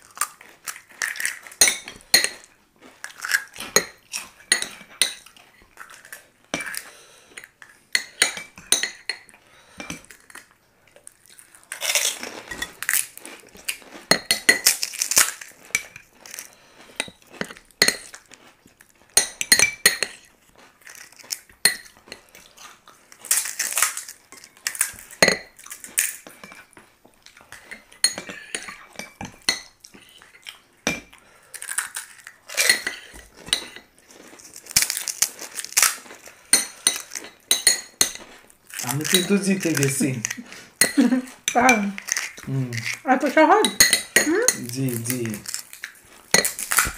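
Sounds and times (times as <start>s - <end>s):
crisp shells cracking: 0.0s - 1.6s, 3.0s - 4.3s, 10.1s - 14.0s, 14.6s - 16.6s, 20.7s - 21.5s, 22.7s - 26.3s, 31.4s - 32.8s, 34.0s - 37.3s, 38.3s - 43.1s, 44.4s - 46.9s
metal spoons clinking on plates: 1.0s - 2.5s, 3.7s - 5.3s, 7.9s - 10.5s, 17.0s - 18.2s, 19.2s - 20.3s, 25.2s - 25.5s, 27.6s - 30.1s, 32.6s - 33.8s, 36.5s - 43.0s, 43.6s - 45.6s, 46.3s - 46.9s.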